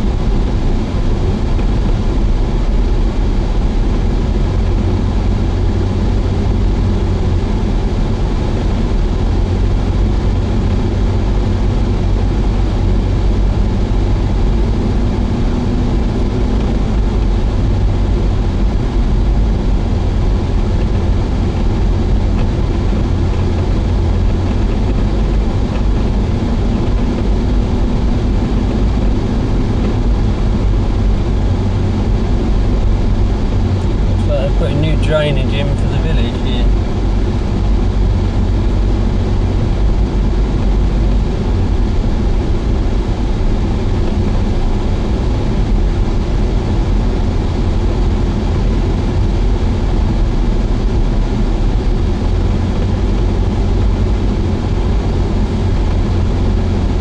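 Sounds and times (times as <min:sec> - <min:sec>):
car engine and tyre rumble: 0:00.0 - 0:57.0.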